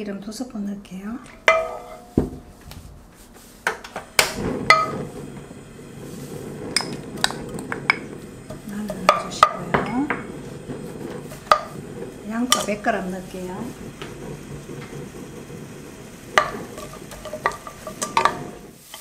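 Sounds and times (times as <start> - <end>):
utensils clinking against a wok: 1.3 - 2.2, 16.4 - 19.0.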